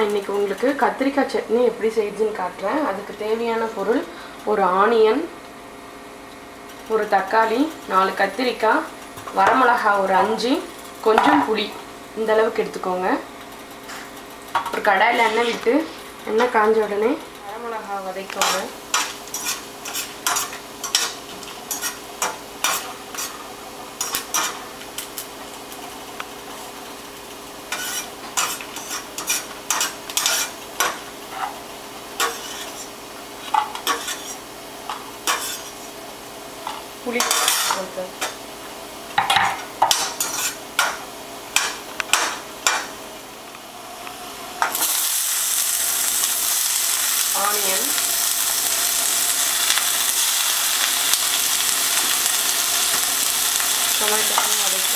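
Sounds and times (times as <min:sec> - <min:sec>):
chillies sizzling in oil: 0:06.9 - 0:54.9
loud hiss of frying vegetables: 0:13.8 - 0:16.4, 0:17.8 - 0:54.9
metal spoon scraping a pan: 0:15.1 - 0:15.7, 0:18.4 - 0:23.4, 0:24.0 - 0:24.6, 0:27.7 - 0:31.6, 0:32.2 - 0:35.9, 0:36.7 - 0:38.4, 0:39.8 - 0:41.0.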